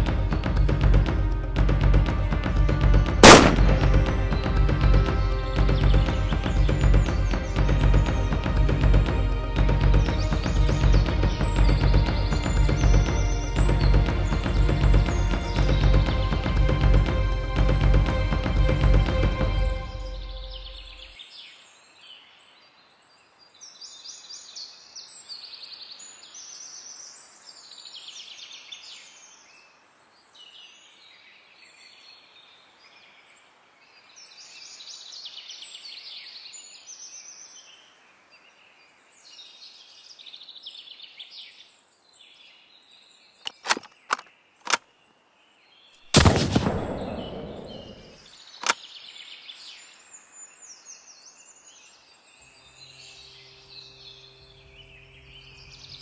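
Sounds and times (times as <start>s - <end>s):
background music: 0.0s - 21.1s, 46.1s - 48.8s
birds singing: 0.0s - 56.0s
rifle shot: 3.2s - 4.2s, 46.1s - 48.8s
sharp clicks: 3.2s - 4.2s, 43.4s - 44.8s, 46.2s - 48.8s.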